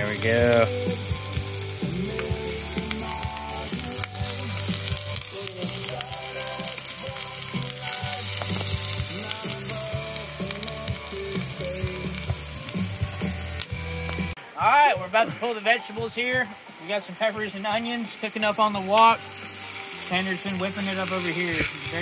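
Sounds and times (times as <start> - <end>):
background music: 0.0 - 22.0
vegetables sizzling on hot pan: 0.0 - 22.0.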